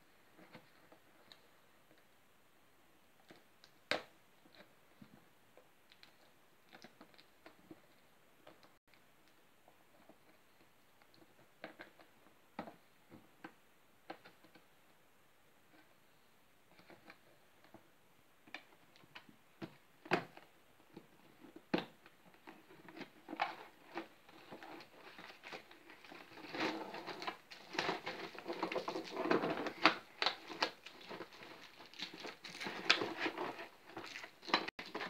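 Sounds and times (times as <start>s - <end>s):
rustling and crinkling packaging: 19.0s - 35.0s.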